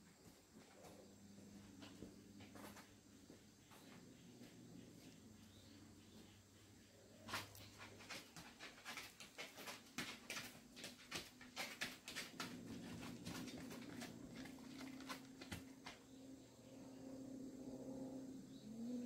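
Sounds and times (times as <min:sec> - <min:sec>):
low steady hum: 0:12.0 - 0:19.0.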